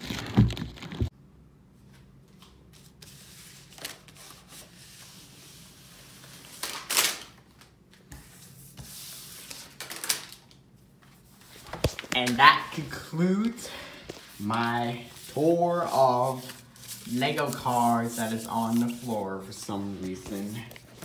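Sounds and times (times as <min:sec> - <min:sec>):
cards rustling and sliding: 0:11.1 - 0:21.0.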